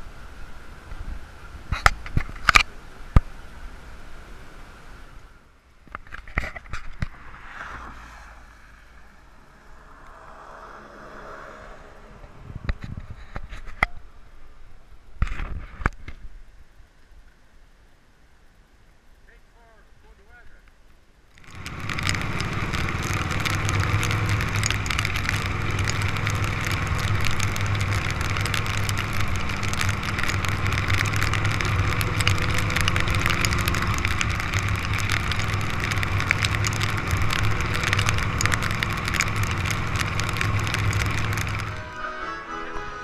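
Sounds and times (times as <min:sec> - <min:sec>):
rain and tyre spray hiss: 0:00.0 - 0:43.0
raindrops ticking on camera: 0:18.4 - 0:42.0.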